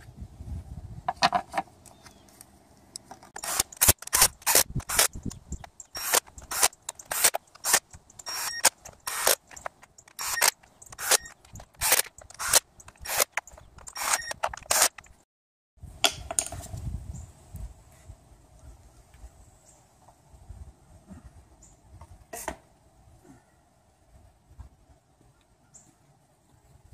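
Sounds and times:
hand ratchet clicking: 3.3s - 15.1s.

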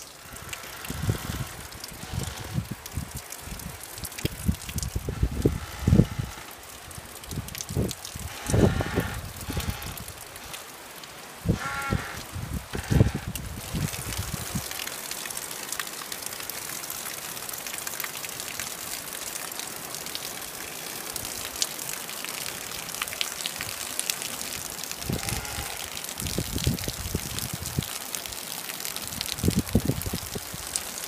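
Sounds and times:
rain falling: 0.0s - 31.0s
water running off roof edge: 0.0s - 31.0s
low rumbles: 0.3s - 10.4s.

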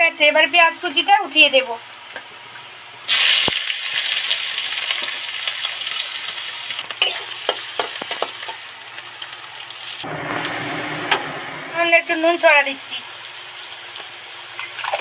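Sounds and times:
onions sizzling in hot oil: 3.0s - 11.2s, 12.2s - 15.0s.

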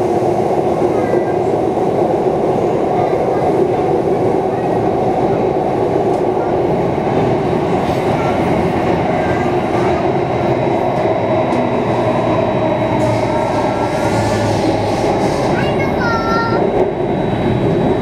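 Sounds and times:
train rumbling in tunnel: 0.0s - 18.0s.

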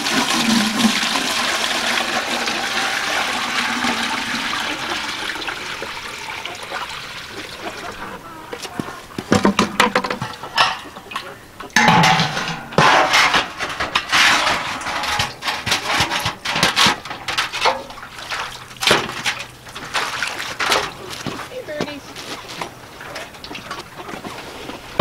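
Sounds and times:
water splashing: 0.0s - 13.2s, 17.3s - 25.0s
metal clanks and scrapes: 9.3s - 18.0s, 18.8s - 21.4s.

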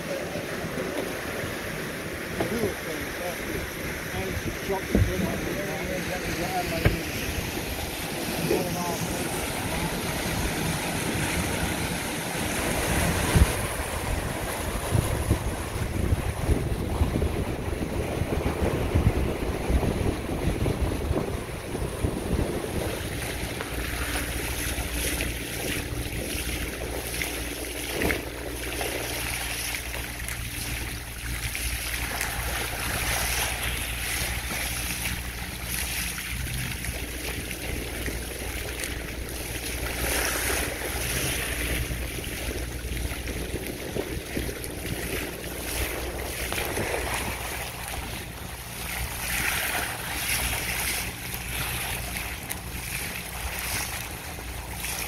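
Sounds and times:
water rushing off boat hull: 0.0s - 55.0s
wind on microphone: 0.0s - 55.0s.

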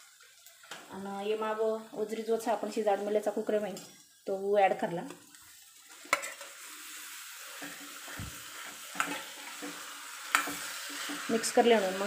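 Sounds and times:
food sizzling in a pan: 0.0s - 12.0s
metal spatula stirring: 5.5s - 12.0s.

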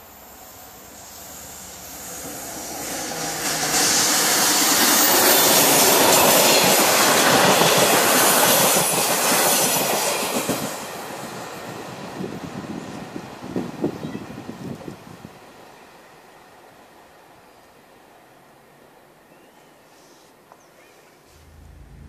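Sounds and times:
train wheels rushing on rails: 0.0s - 14.0s.

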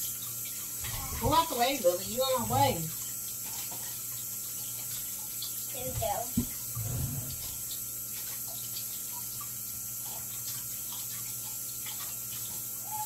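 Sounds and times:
tap running into sink: 5.8s - 7.7s.

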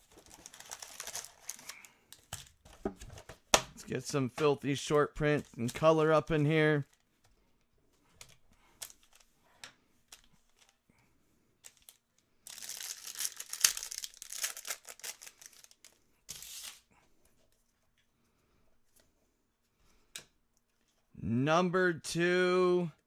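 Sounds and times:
foil wrapper tearing: 0.0s - 1.9s, 11.8s - 16.8s
foil crinkling: 0.0s - 2.5s, 11.6s - 16.8s.

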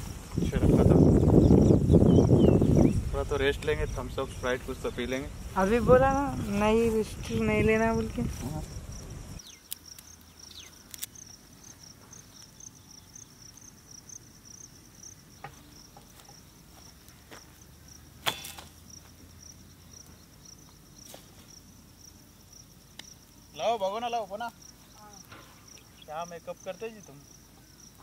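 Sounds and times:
cricket chirping: 0.0s - 28.0s
sharp clicks: 9.5s - 11.3s.

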